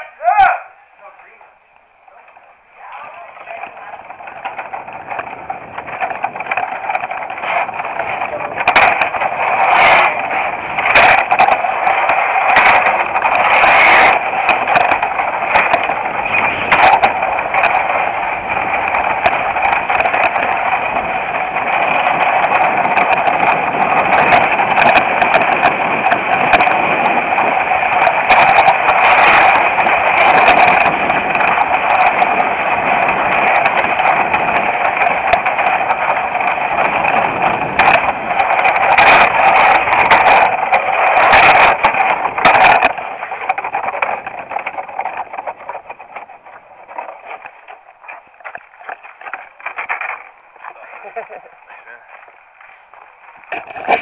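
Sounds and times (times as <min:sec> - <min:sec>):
sled knocking and clattering: 0:01.0 - 0:54.0
steel runners scraping over ice: 0:02.0 - 0:54.0.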